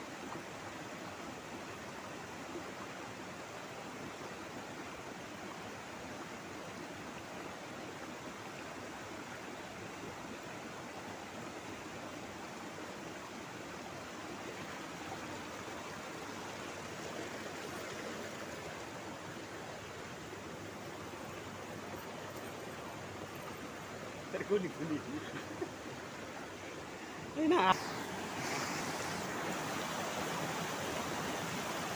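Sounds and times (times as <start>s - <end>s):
river rushing over stones: 0.0s - 31.9s.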